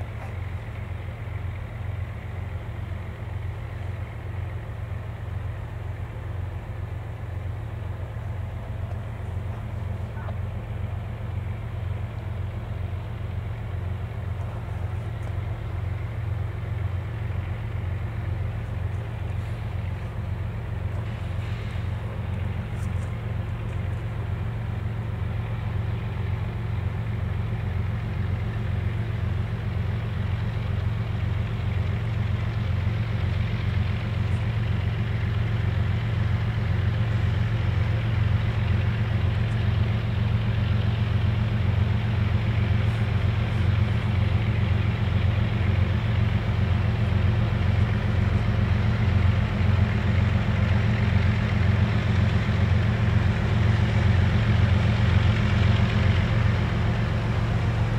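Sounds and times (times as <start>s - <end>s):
diesel locomotive engines rumbling: 0.0s - 57.9s.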